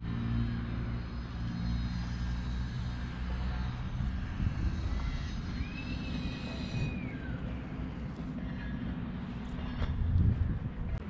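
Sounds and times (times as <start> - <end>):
distant engine droning: 0.0 - 11.0
thin high whistle: 5.1 - 7.5.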